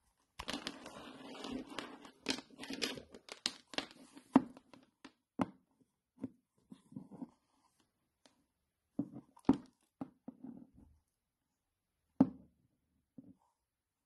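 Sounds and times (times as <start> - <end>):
plastic charger rustling and rubbing: 0.4 - 4.8.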